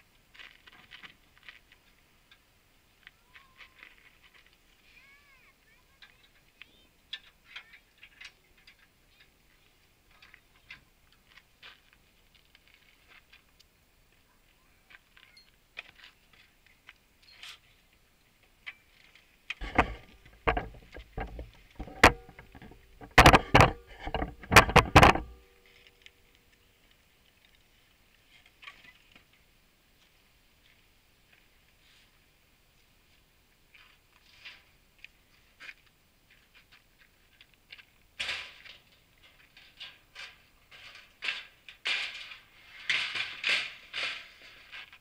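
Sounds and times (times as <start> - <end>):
loud metal clanks: 19.6 - 25.6.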